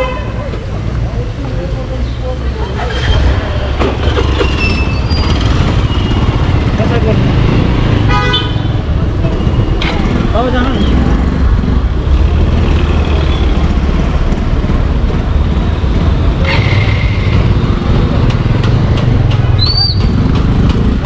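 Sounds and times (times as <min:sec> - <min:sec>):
street traffic: 0:00.0 - 0:21.0
horn toot: 0:08.0 - 0:08.8
motorcycle engine running: 0:09.1 - 0:21.0.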